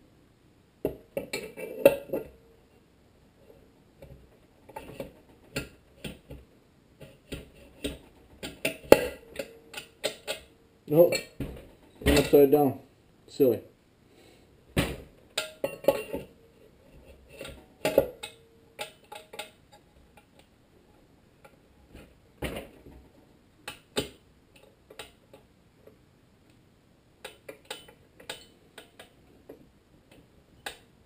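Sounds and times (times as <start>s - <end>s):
metal clicks and knocks: 17.3s - 20.5s, 27.2s - 30.9s.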